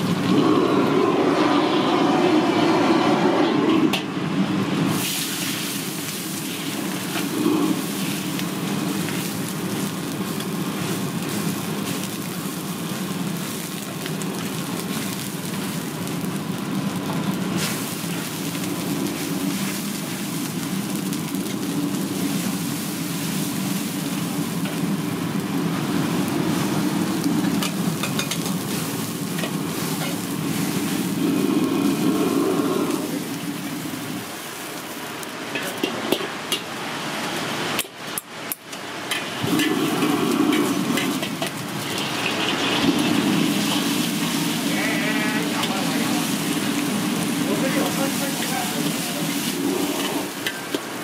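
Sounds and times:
burner rushing: 0.0s - 35.3s, 39.4s - 50.8s
liquid sizzling and boiling: 0.0s - 51.0s
tap water running: 39.4s - 44.7s.

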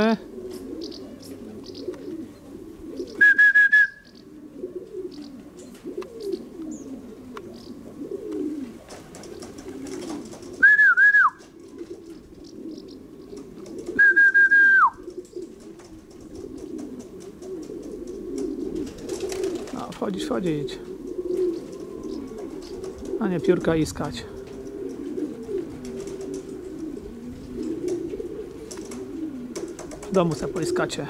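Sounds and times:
pigeons cooing: 0.0s - 31.0s
high-pitched whistles: 3.2s - 4.1s, 14.0s - 15.0s.

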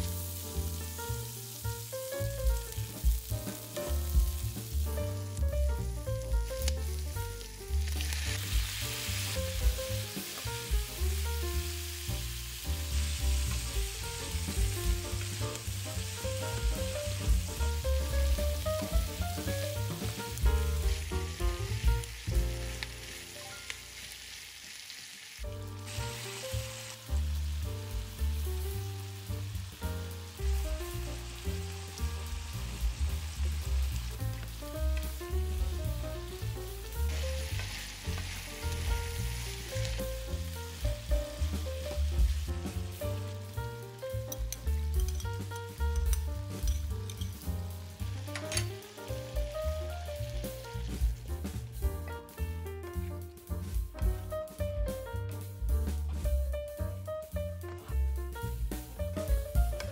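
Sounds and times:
meat sizzling in a frying pan: 0.0s - 55.0s, 55.6s - 59.9s
background music with bass beat: 49.1s - 59.9s.

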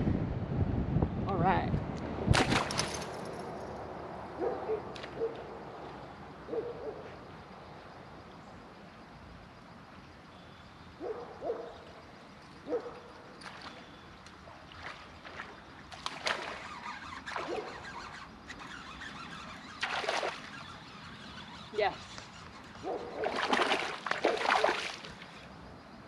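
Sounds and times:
fish splashing at water surface: 2.3s - 3.1s, 19.8s - 20.6s, 23.2s - 25.4s.

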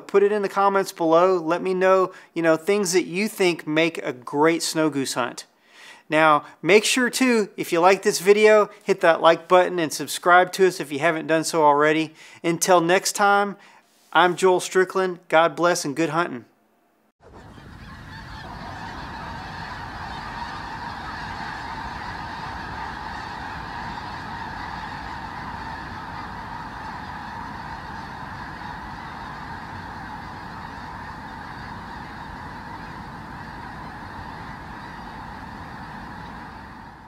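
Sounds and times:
flock of geese honking: 17.2s - 37.0s.

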